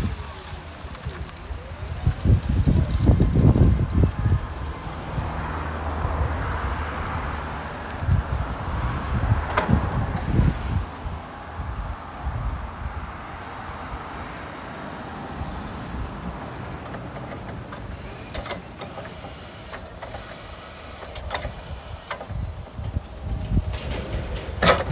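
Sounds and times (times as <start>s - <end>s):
electric motors whining: 0.2s - 6.2s, 13.4s - 24.6s
high hiss: 13.3s - 16.2s.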